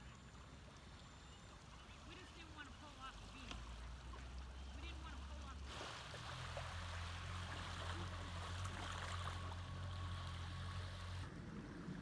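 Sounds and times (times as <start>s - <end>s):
outboard motor humming: 0.0s - 12.0s
water hissing: 5.4s - 9.4s.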